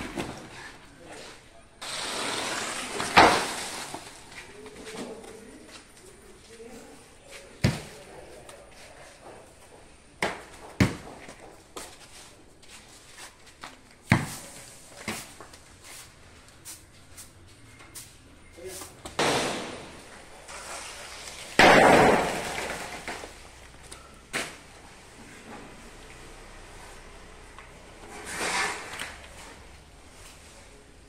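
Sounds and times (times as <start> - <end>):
fronds rustling crash: 2.3 - 4.6, 19.2 - 23.6
coconuts thudding on ground: 10.2 - 11.5, 21.6 - 23.7.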